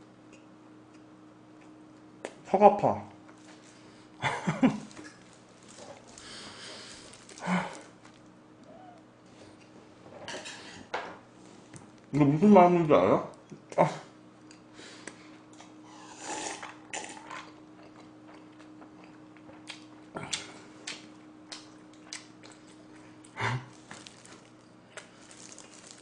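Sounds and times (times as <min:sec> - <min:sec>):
faint low hum: 0:00.0 - 0:26.0
breathy exhale: 0:06.2 - 0:07.8.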